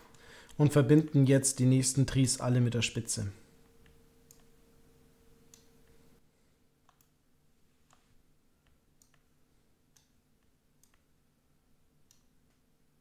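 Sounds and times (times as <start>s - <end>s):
faint steady hum: 0.0s - 13.0s
computer mouse clicks: 3.8s - 4.5s, 5.5s - 6.0s, 6.8s - 7.2s, 8.6s - 9.3s, 9.9s - 11.1s, 12.0s - 12.6s.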